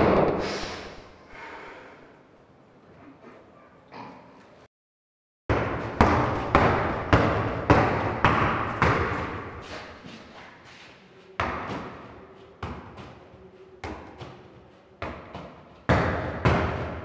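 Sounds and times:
heavy thuds echoing in a room: 0.0 - 1.6, 5.5 - 10.6, 11.3 - 17.0.

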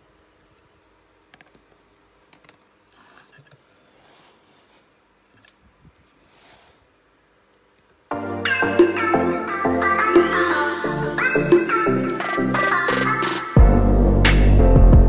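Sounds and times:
electronic background music: 8.1 - 15.0.

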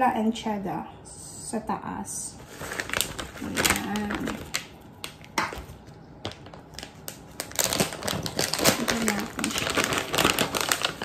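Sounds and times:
plastic bag crinkling: 2.4 - 11.0.

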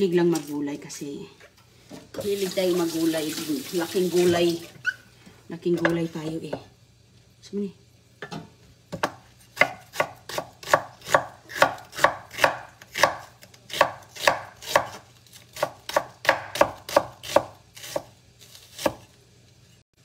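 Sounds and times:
knife chopping on wooden board: 8.9 - 15.0, 15.6 - 18.1, 18.7 - 19.1.

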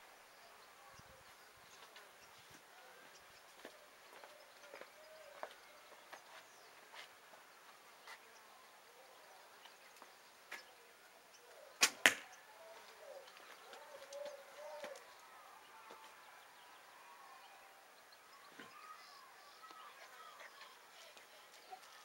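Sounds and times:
faint bird chirps: 8.0 - 22.0
arrow hitting target: 11.8 - 12.3
bow string snap: 11.8 - 12.3.

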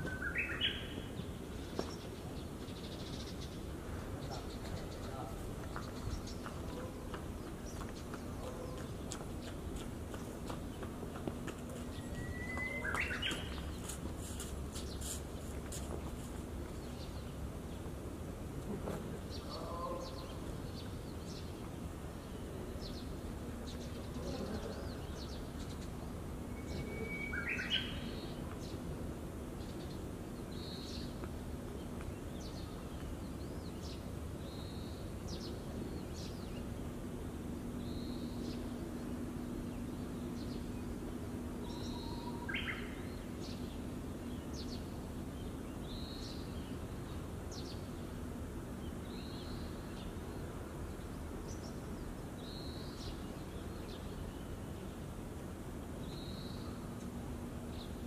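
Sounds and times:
bird singing whistled song: 12.0 - 13.6, 26.5 - 28.3.

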